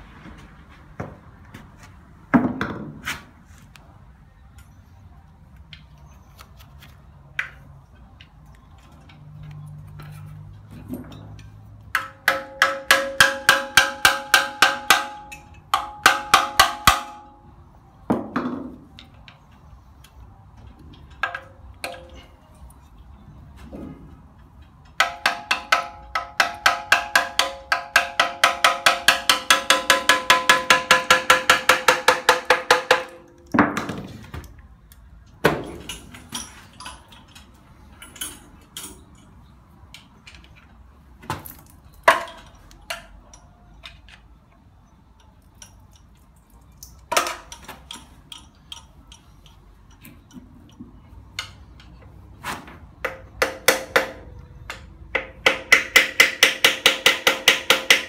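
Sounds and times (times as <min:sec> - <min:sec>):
metal tools clanking: 0:35.6 - 0:40.8, 0:44.8 - 0:52.1.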